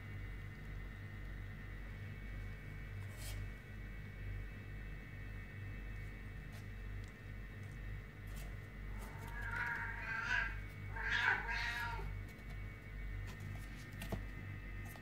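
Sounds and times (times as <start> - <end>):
kitten meowing: 9.0 - 12.1.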